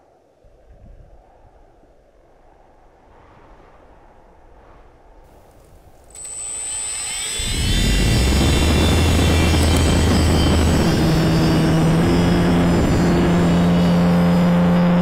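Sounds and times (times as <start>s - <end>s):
wind rush on microphone: 0.0s - 15.0s
electric motor whine and drone: 5.5s - 15.0s.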